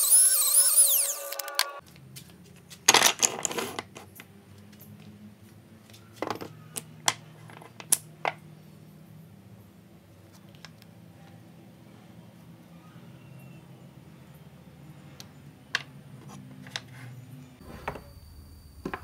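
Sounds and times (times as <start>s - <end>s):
wooden sticks clattering on workbench: 2.8s - 4.1s.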